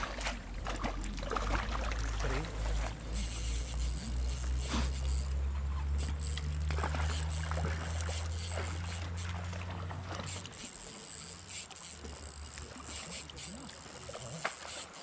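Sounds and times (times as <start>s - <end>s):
low steady hum: 0.0s - 15.0s
thin high whine: 2.4s - 9.5s, 10.1s - 15.0s.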